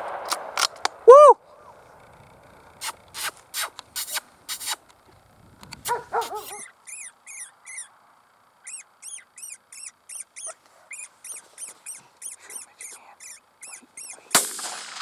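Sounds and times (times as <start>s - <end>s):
electronic caller high squeaks: 6.3s - 7.9s, 8.6s - 14.3s.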